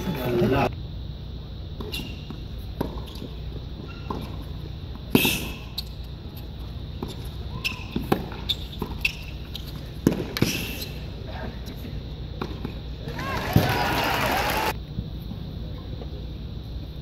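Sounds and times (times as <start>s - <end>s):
low background noise: 0.0s - 17.0s
tennis ball hits and bounces: 10.0s - 10.6s, 12.4s - 12.8s.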